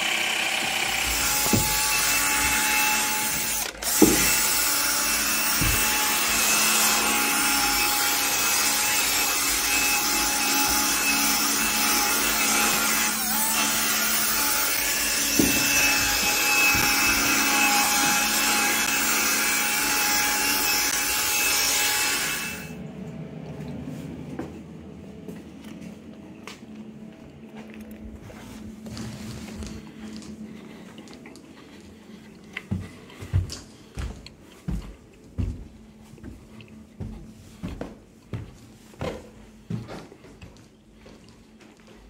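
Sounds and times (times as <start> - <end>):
drill brush scrubbing carpet: 0.0 - 22.7.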